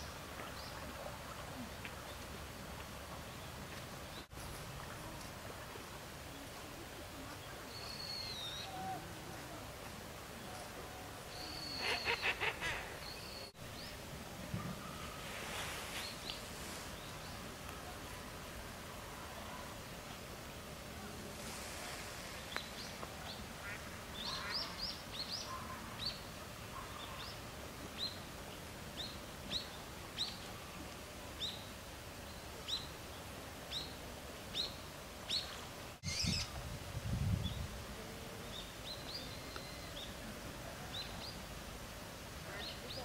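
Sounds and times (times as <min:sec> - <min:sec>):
small bird chirping: 0:34.6 - 0:36.5.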